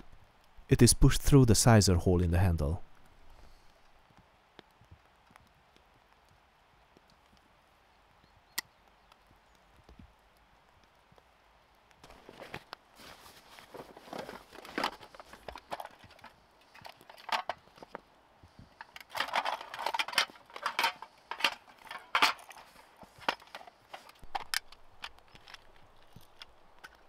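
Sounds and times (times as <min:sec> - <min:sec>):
metal tins clicking and rattling: 0:13.8 - 0:17.7, 0:18.8 - 0:27.0.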